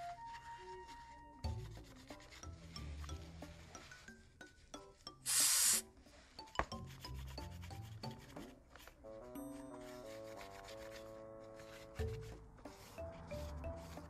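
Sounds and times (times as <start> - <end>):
background music with held notes: 0.0 - 14.0
aerosol spray hiss: 5.3 - 5.8.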